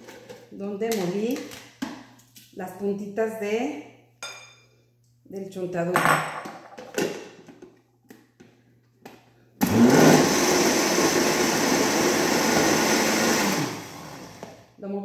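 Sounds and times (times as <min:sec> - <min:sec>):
blender grinding: 0:09.6 - 0:14.7.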